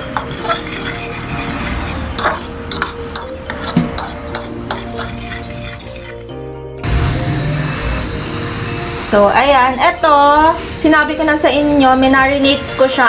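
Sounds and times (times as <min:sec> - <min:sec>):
fork scraping in plastic bowl: 0:00.2 - 0:06.4.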